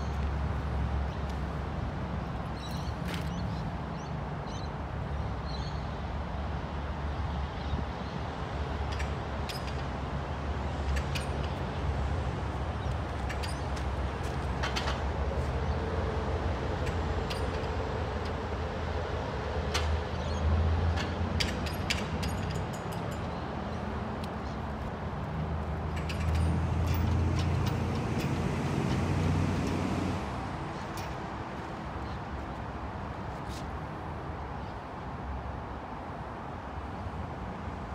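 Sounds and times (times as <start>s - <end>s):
light clinks and knocks: 21.0s - 23.4s, 25.9s - 29.9s.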